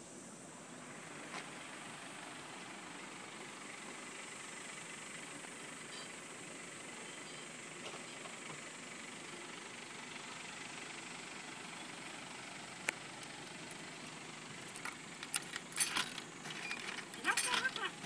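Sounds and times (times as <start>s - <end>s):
steady background noise: 0.0s - 18.0s
coins clinking: 14.6s - 18.0s.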